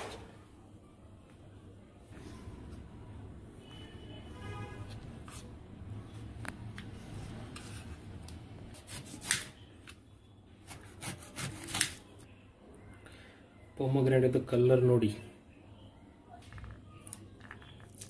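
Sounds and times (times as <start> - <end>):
knife scraping through fruit: 10.7 - 12.0.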